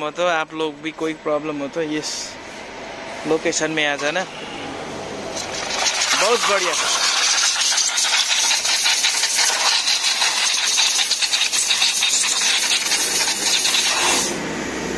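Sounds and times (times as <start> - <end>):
compressed air gun hissing: 5.3 - 14.4.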